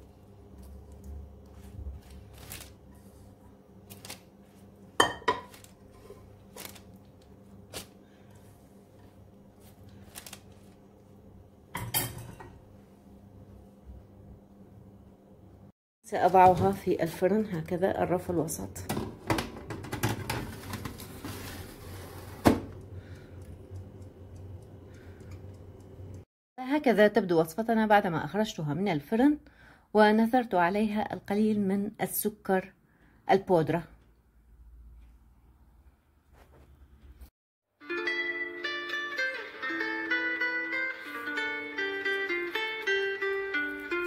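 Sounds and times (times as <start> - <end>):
metal baking tray scraping: 20.5 - 22.4.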